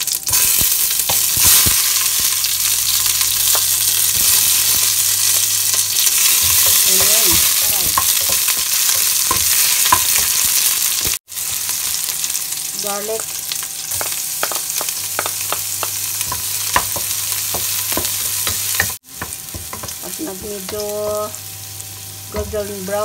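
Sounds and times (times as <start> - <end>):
onions sizzling in hot oil: 0.0 - 23.0
wooden spatula knocking against pot: 14.0 - 20.8.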